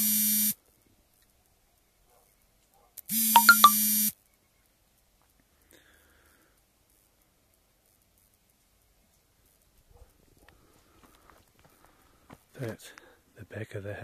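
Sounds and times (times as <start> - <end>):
electronic buzzer tone: 0.0 - 0.6, 3.1 - 4.1
quick higher beeps: 3.3 - 3.8.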